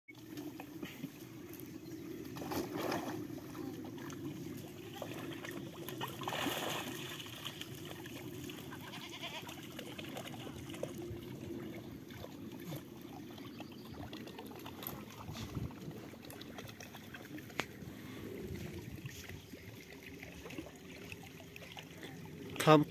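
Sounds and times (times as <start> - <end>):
water trickling into trough: 0.2 - 22.9
goats bleating: 8.7 - 9.8.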